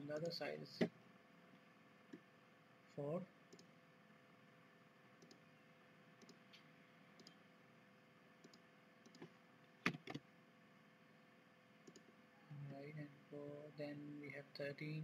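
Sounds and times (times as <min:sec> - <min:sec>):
computer mouse clicks: 0:03.5 - 0:03.7, 0:05.2 - 0:05.5, 0:06.2 - 0:07.4, 0:08.4 - 0:10.2, 0:11.8 - 0:12.2.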